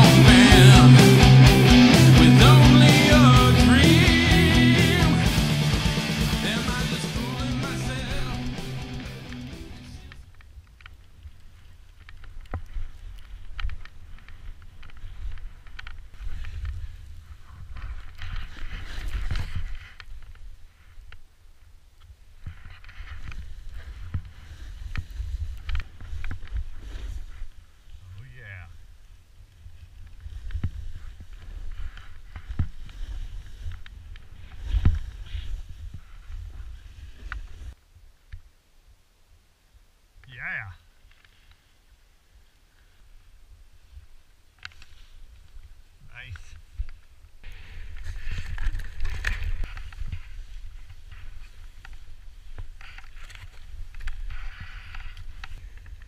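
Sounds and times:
wind and snow rumble on microphone: 10.1 - 38.1, 41.3 - 56.0
wind noise on microphone: 22.4 - 27.5, 28.8 - 37.8.

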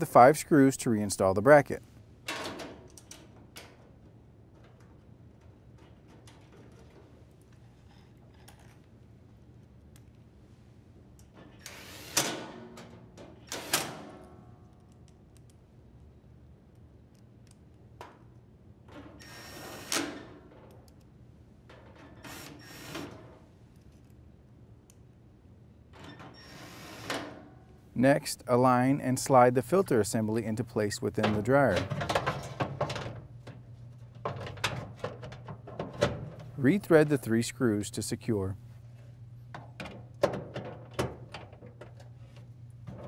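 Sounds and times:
drill driving screws into metal: 11.6 - 12.4, 13.5 - 14.0, 19.2 - 20.2, 22.2 - 23.2, 26.4 - 27.4.

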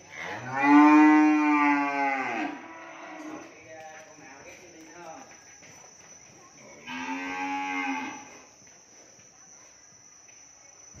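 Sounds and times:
cow mooing: 0.2 - 3.3, 6.8 - 8.3.

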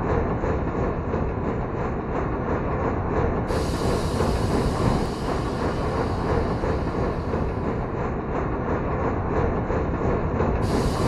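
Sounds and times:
model train rolling on rails: 0.2 - 11.0
model locomotive motor: 3.5 - 7.8, 10.6 - 11.0.

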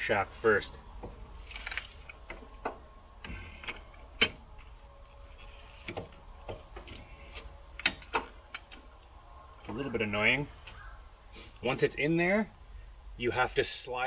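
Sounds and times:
metal parts clinking and knocking: 1.4 - 2.8, 3.5 - 4.7.

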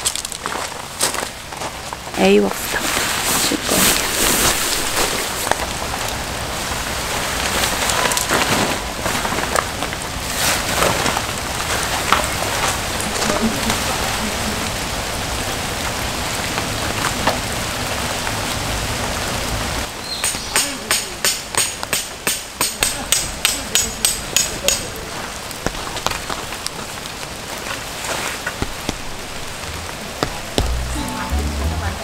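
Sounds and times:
steady rain: 0.0 - 32.0
nylon tarp rustling: 2.6 - 14.6, 25.7 - 32.0.

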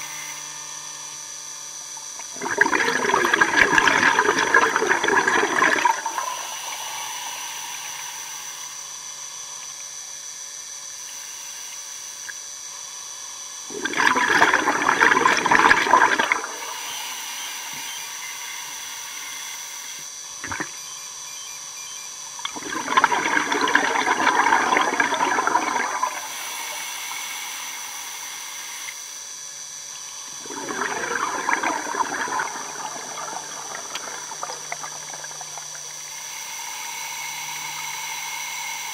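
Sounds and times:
faint high whine: 0.0 - 38.9
bubbles rushing underwater: 2.2 - 6.3, 13.7 - 16.6, 22.4 - 26.2, 30.4 - 36.0.

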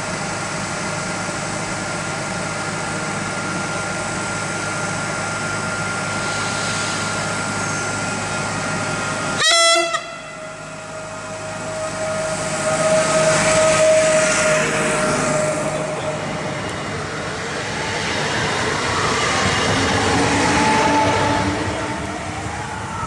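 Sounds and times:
wheels rushing on rails: 0.0 - 23.0
train motor whine: 3.3 - 23.0
train horn blast: 9.4 - 16.4, 20.6 - 22.2.

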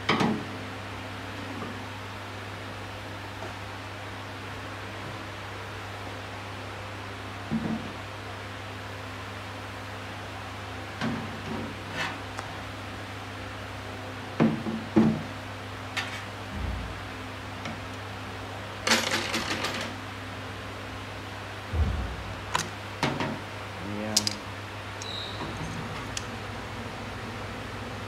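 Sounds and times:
steady low hum: 0.0 - 19.0, 19.9 - 28.0
low thud: 16.5 - 17.1, 21.7 - 22.4
metal parts clinking and clanking: 24.2 - 24.4.

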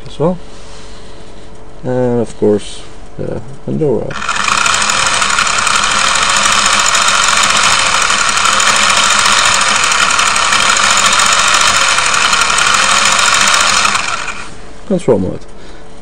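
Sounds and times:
toy car motor whirring: 4.1 - 14.6.

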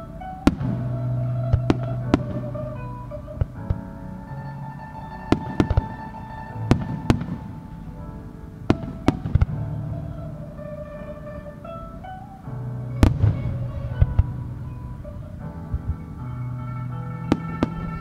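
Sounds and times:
music with held notes: 0.0 - 18.0
fireworks bursting with bangs: 0.3 - 3.9, 5.2 - 8.0, 8.6 - 12.3, 13.0 - 16.4.

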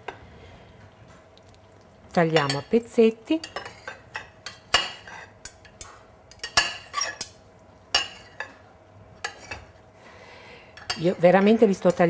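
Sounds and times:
knife and fork clinking on plate: 3.4 - 7.4.

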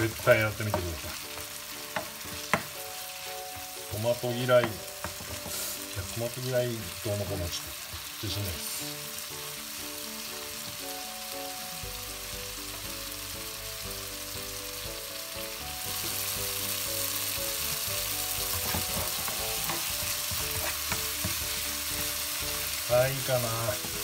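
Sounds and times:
tomatoes sizzling in oil: 0.0 - 24.0
spatula scraping a pan: 5.0 - 5.9, 18.4 - 22.4.

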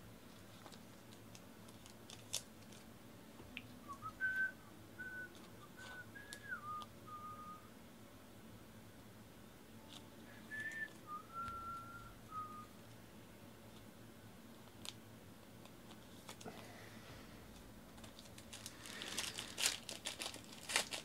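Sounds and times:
person whistling a tune: 3.8 - 7.7, 10.3 - 12.7.

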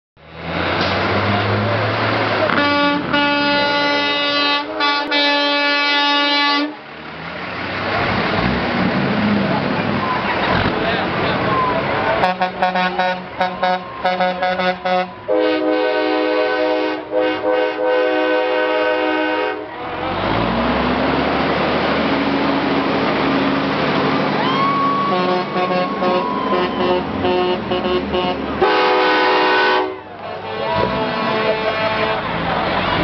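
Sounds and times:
diesel truck engine passing: 0.2 - 33.0
truck air horns blasting: 2.4 - 6.8, 12.2 - 20.1, 24.6 - 33.0.

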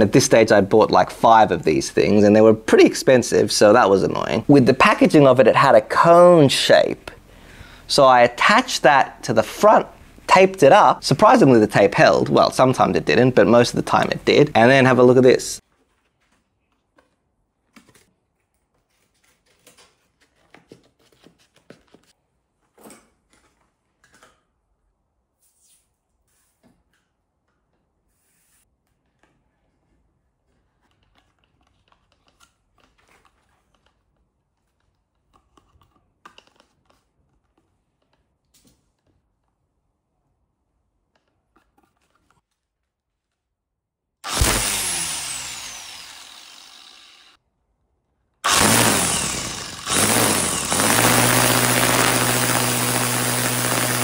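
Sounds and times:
angle grinder running: 44.2 - 47.4, 48.4 - 54.0.

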